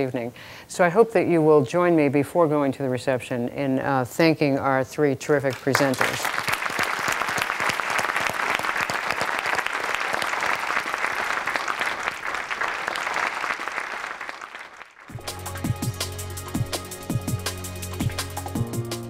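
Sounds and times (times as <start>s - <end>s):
audience applauding: 5.5s - 15.2s
music: 15.1s - 19.0s.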